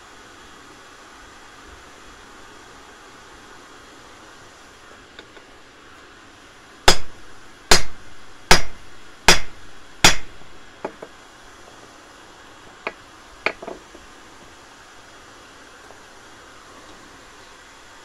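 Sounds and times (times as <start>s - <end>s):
hammer striking steel on anvil: 6.9s - 11.0s.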